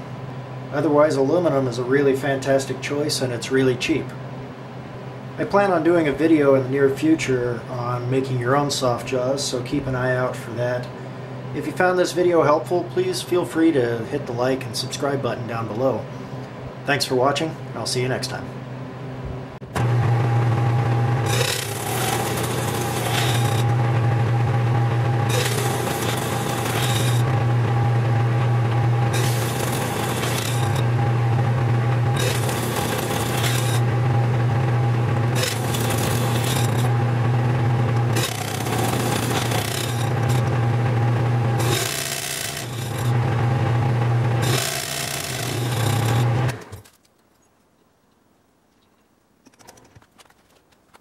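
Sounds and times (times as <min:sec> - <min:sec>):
metal lathe motor hum: 0:19.7 - 0:46.6
cutting tool scraping metal: 0:21.2 - 0:23.8, 0:25.2 - 0:27.3, 0:29.1 - 0:30.8, 0:32.2 - 0:33.8, 0:35.3 - 0:36.9, 0:38.1 - 0:40.5, 0:41.6 - 0:43.2, 0:44.4 - 0:46.6.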